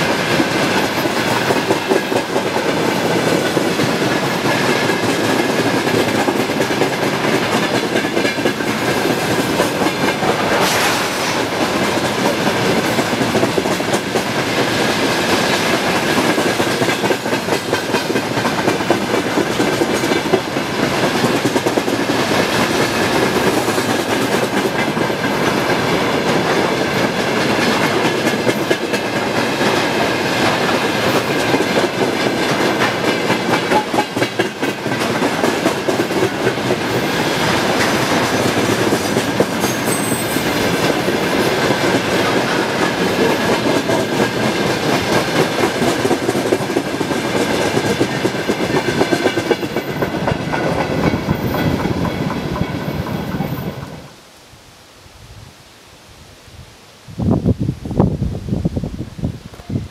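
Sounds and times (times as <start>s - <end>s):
train wheels clattering over rails: 0.0s - 54.2s.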